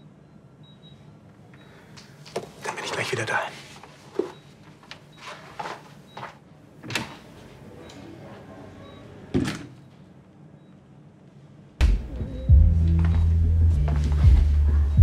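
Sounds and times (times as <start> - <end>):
soft footsteps: 12.7 - 14.7.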